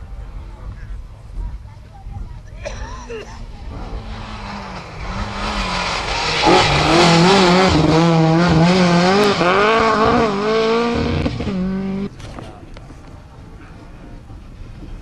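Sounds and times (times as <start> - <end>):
rally car engine revving: 3.4 - 12.2.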